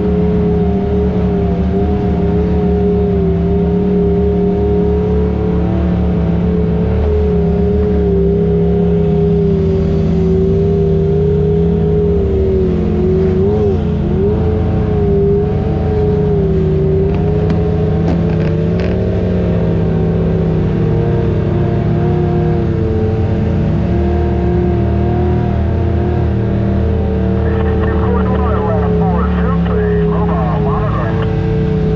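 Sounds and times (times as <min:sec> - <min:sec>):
vehicle engine running at low revs: 0:00.0 - 0:31.9.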